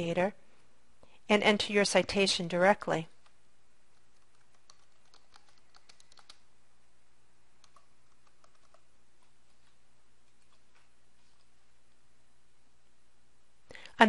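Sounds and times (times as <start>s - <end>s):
faint keyboard typing: 3.1s - 6.5s, 7.6s - 12.0s.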